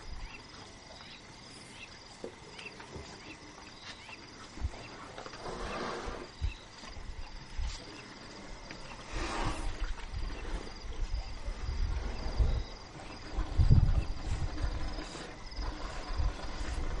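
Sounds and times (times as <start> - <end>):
crickets chirping: 0.0 - 17.0
low thuds and rumbles: 11.2 - 17.0.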